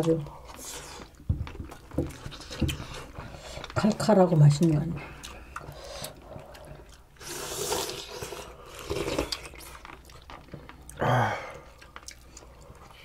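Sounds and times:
chewing: 0.0 - 13.0
slurping broth: 7.2 - 9.8.

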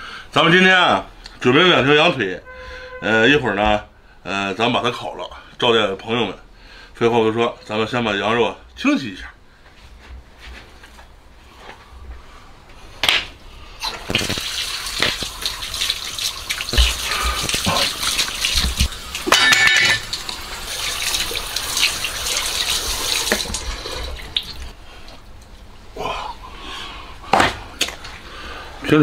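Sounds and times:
tap water running and splashing: 13.8 - 24.8.

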